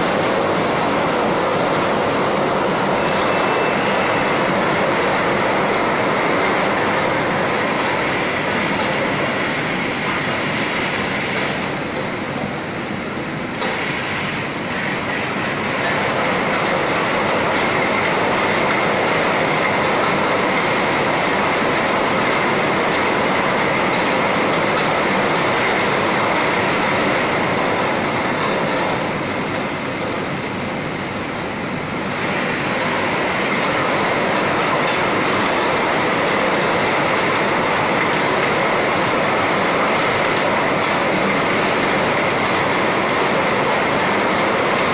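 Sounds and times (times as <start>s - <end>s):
steady high machine tone: 2.0s - 7.4s.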